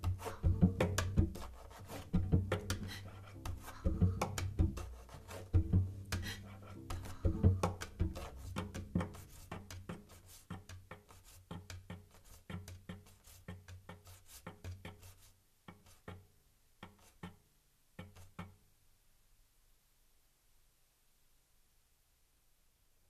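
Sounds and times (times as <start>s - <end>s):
fingertip taps on cello: 0.0s - 17.4s, 18.0s - 18.6s.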